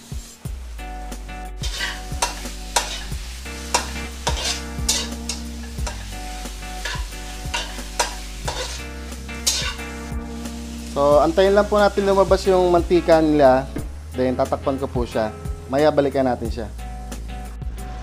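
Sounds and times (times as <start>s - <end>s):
fat sizzling: 0.0s - 18.0s
metal spatula scraping wok: 1.6s - 10.1s.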